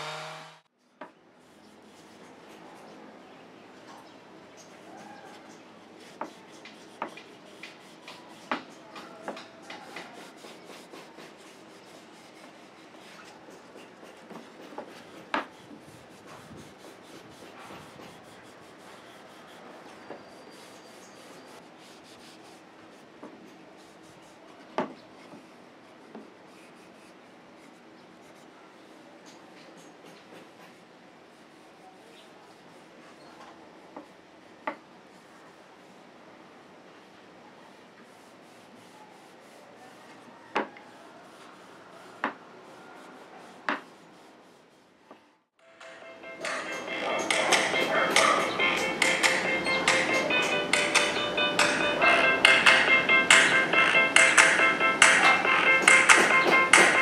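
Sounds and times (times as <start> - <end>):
cloth scrubbing wood: 9.2 - 22.7.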